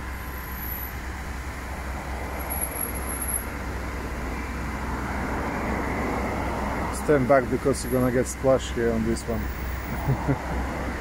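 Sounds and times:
truck engine droning: 0:00.0 - 0:11.0.

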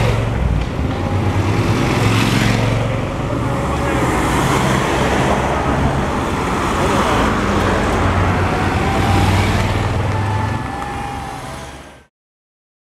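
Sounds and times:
vehicle engines and traffic: 0:00.0 - 0:12.1
voices: 0:02.9 - 0:12.0.

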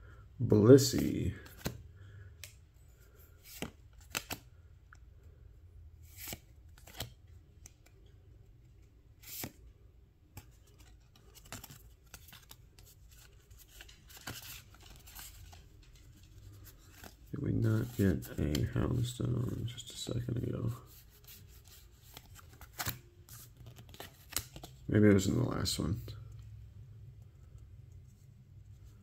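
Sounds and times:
cards clicking and swishing: 0:01.4 - 0:01.8, 0:03.4 - 0:04.5, 0:06.0 - 0:08.0, 0:08.7 - 0:09.6, 0:10.3 - 0:17.2, 0:21.0 - 0:24.9
rustle of cards: 0:02.9 - 0:04.5, 0:10.3 - 0:25.3.

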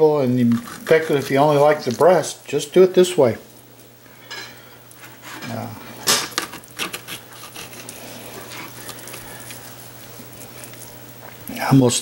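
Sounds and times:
knife scraping plastic cutting board: 0:00.4 - 0:01.7, 0:06.4 - 0:08.8.

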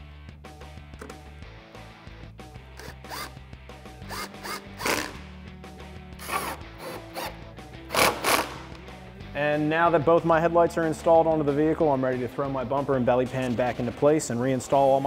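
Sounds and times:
background music: 0:00.0 - 0:15.0
cordless power tool driving bolts: 0:02.8 - 0:03.4, 0:04.1 - 0:05.2, 0:06.2 - 0:08.7.

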